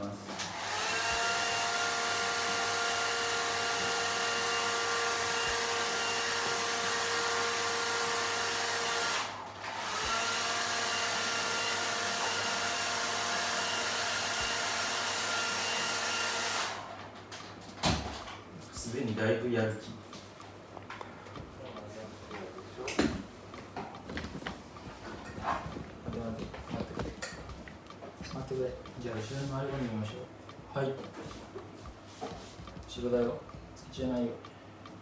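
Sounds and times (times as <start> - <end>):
hair dryer running: 0.0 - 17.5.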